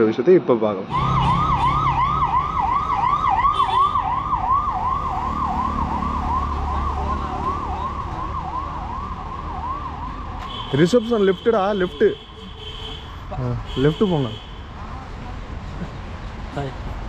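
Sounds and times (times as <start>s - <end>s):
low traffic rumble: 0.8s - 17.0s
electronic siren yelping: 0.9s - 10.4s.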